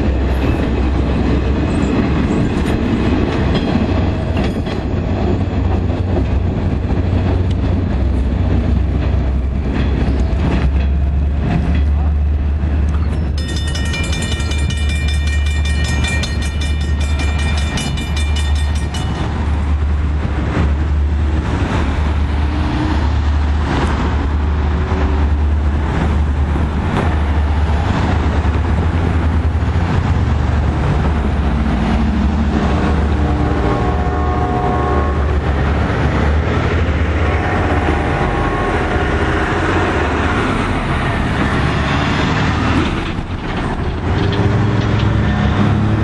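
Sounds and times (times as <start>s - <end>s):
train rumble: 0.0s - 46.0s
crossing bell ringing: 13.0s - 20.0s
train horn: 33.1s - 35.7s, 37.1s - 40.4s.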